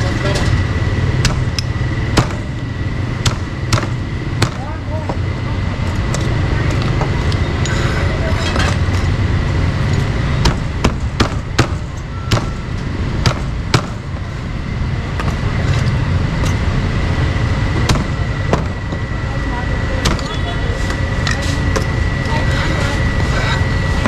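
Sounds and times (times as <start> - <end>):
traffic hum: 0.0 - 24.0
cleaver chopping meat on wood: 1.2 - 1.5, 2.2 - 2.4, 3.2 - 4.6, 10.4 - 12.5.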